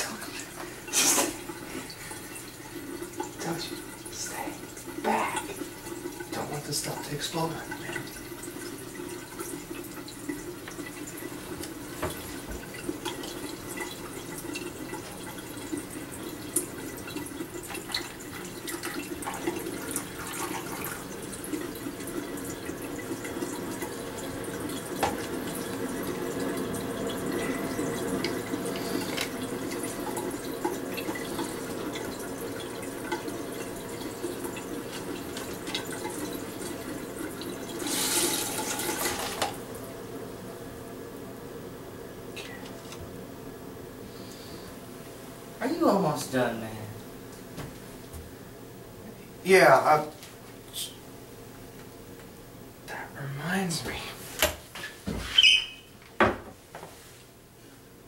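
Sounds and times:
sink tap running: 0:00.0 - 0:39.8.

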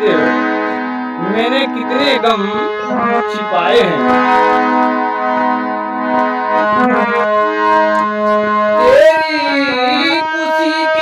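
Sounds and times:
harmonium chords: 0:00.0 - 0:11.0
man singing: 0:08.8 - 0:11.0.

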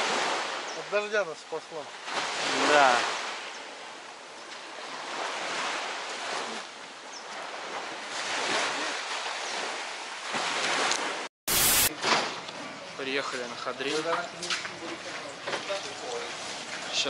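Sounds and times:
small waves washing on beach: 0:00.0 - 0:12.2.

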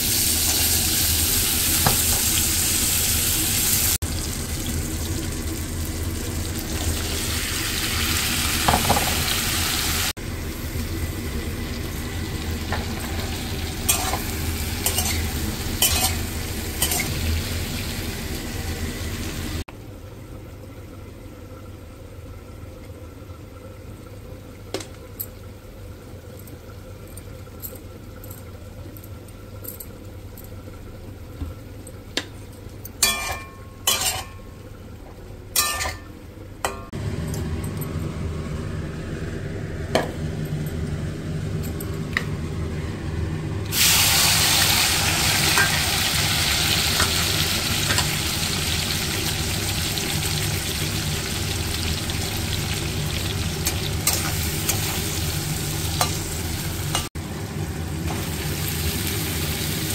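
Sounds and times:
food sizzling in hot oil: 0:00.0 - 0:19.6, 0:43.7 - 0:59.9.

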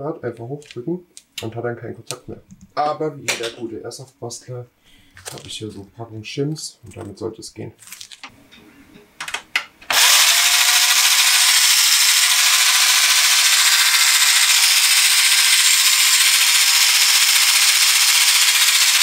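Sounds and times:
gear motor whirring and whining: 0:09.9 - 0:19.0.

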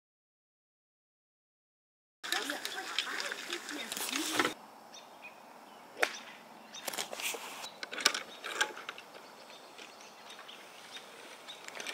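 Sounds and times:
golf club striking ball: 0:06.0 - 0:06.3.

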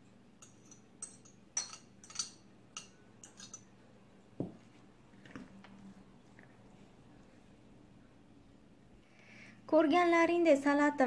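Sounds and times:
cutlery clinking and scraping: 0:00.4 - 0:03.7.

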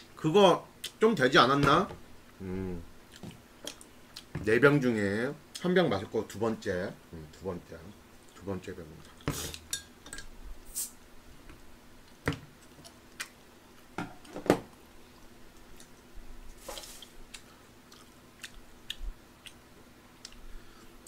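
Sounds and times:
person chewing: 0:02.2 - 0:04.3, 0:15.1 - 0:19.6, 0:20.2 - 0:21.0.

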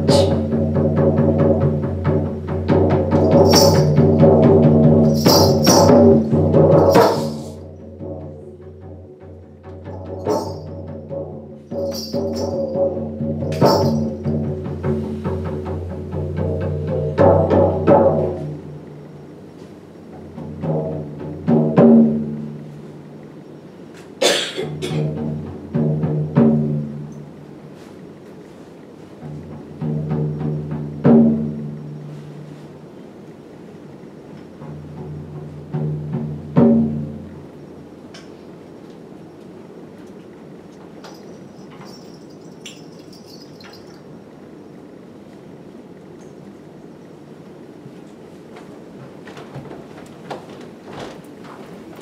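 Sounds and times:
frame drum beating: 0:00.0 - 0:19.2, 0:20.1 - 0:22.8, 0:24.7 - 0:27.6, 0:29.1 - 0:32.5, 0:34.6 - 0:38.0.

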